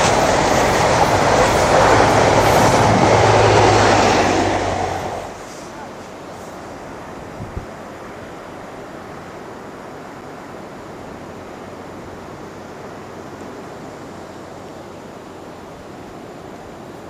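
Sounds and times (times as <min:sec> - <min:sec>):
sea surf: 0:00.0 - 0:17.0
wind on microphone: 0:07.3 - 0:07.8.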